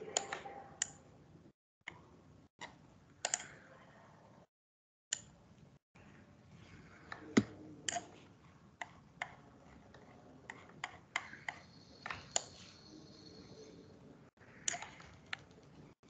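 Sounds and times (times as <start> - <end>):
computer clicks and taps: 0.0 - 1.0, 1.9 - 3.6, 8.8 - 12.7, 14.7 - 15.7
faint high steady tone: 11.4 - 14.3.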